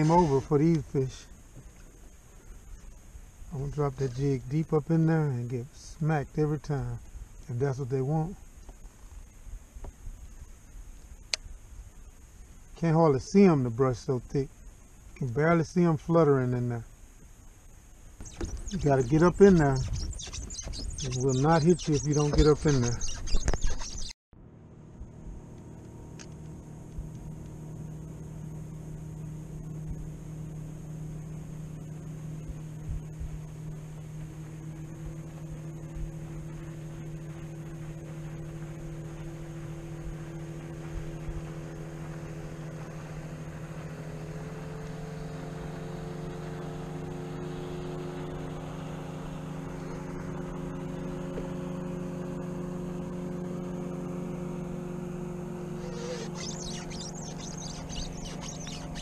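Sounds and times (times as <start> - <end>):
water rushing along hull: 0.0 - 7.4, 18.2 - 23.2, 26.9 - 59.0
electric motor humming: 18.2 - 24.1, 25.3 - 59.0.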